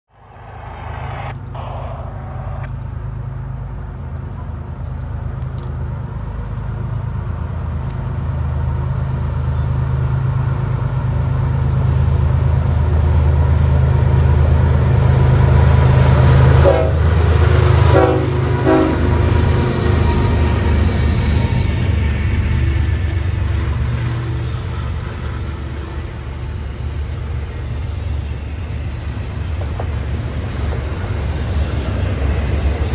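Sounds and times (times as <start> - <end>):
diesel locomotive engine rumble: 0.0 - 32.9
locomotive horn blasts: 16.6 - 17.1, 17.9 - 19.2.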